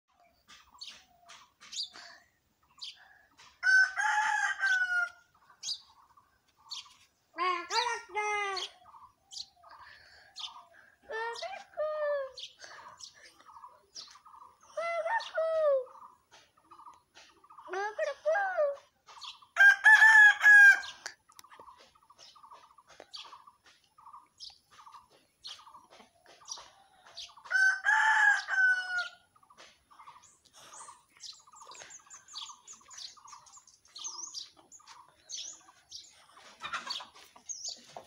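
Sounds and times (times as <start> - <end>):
small birds chirping: 0.1 - 19.6, 20.6 - 38.0
rooster crowing: 3.6 - 5.2, 27.5 - 29.2.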